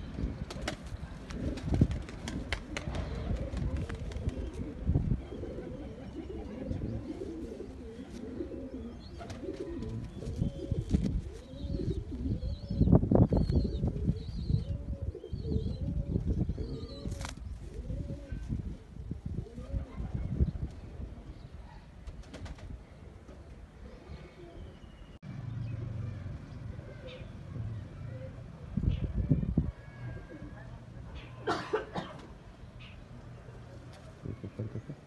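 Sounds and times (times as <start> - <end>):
pigeons cooing: 1.0 - 18.5, 19.4 - 21.9, 26.7 - 27.4, 33.4 - 35.0.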